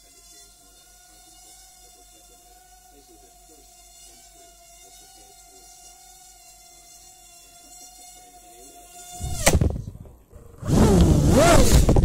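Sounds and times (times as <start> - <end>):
small drone motors whining: 6.8 - 12.0
loud scraping: 9.2 - 12.0
drone crash knock and clattering: 9.3 - 10.1.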